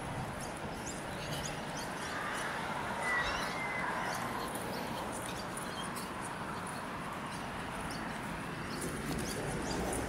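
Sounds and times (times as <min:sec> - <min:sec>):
clear bird call: 0:01.8 - 0:04.6.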